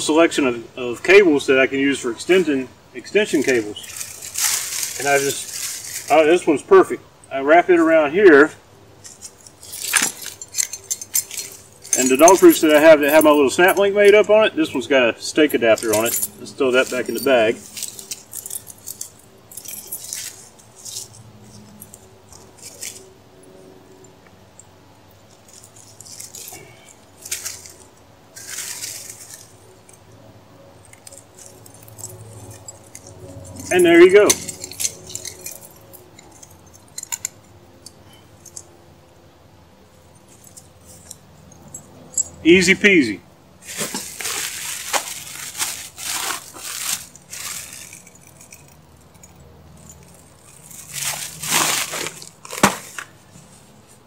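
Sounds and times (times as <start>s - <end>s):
metal cable and snap link clinking: 3.2s - 6.5s, 8.9s - 42.4s, 43.6s - 53.1s
plastic bag rustling: 3.4s - 6.4s, 25.4s - 29.8s, 43.6s - 48.5s, 49.8s - 53.7s.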